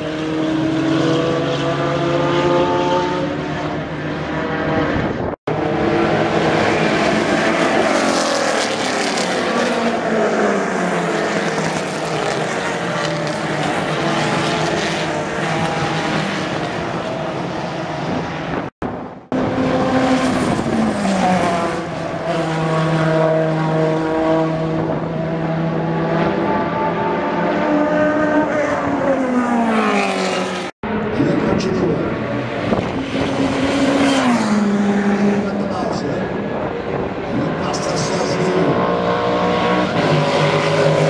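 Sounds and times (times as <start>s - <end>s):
race car engines at high revs: 0.0s - 41.0s.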